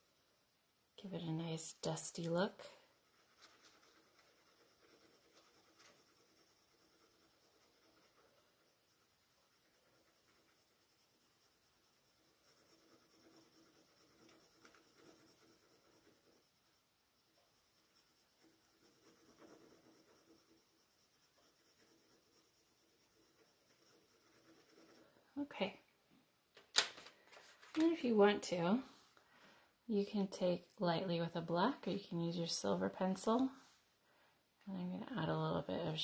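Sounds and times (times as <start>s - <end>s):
pencil scratching on paper: 0.0s - 25.8s.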